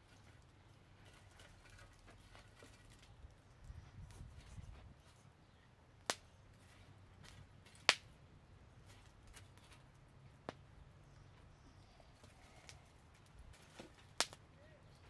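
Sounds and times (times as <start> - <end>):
sharp cracks: 7.8 - 8.1, 14.1 - 14.4.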